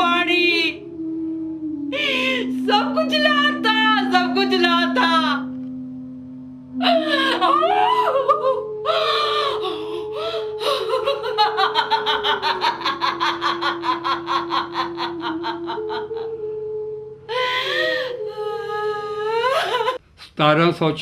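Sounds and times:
musical drone: 0.0s - 20.0s
woman laughing hysterically: 6.8s - 16.4s, 19.4s - 20.0s.

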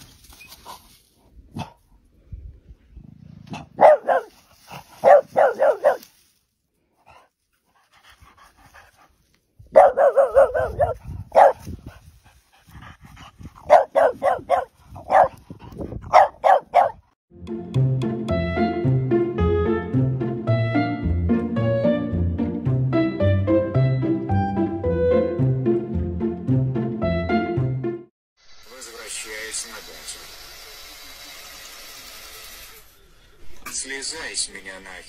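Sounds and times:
dog barking yappy barks: 3.5s - 4.4s, 5.0s - 6.1s, 9.7s - 11.6s, 13.6s - 15.4s, 16.1s - 17.0s.

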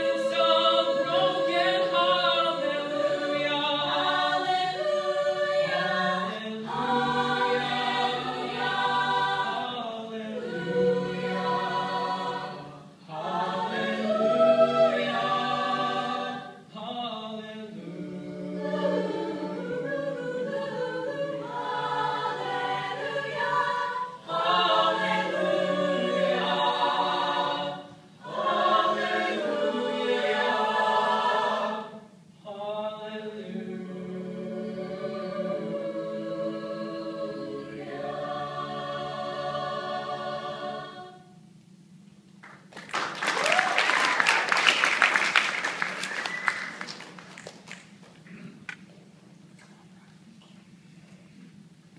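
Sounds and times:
a cappella group singing: 0.0s - 41.5s.

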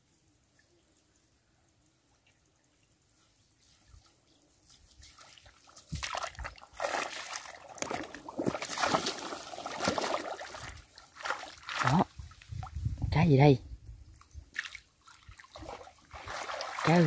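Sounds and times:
water trickling and splashing: 2.1s - 13.0s, 13.9s - 17.0s.

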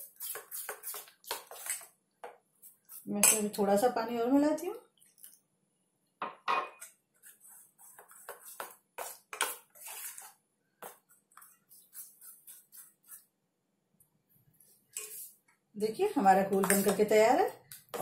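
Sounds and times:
spoon clinking and scraping bowl: 2.9s - 3.6s, 14.9s - 15.4s, 16.5s - 17.1s.

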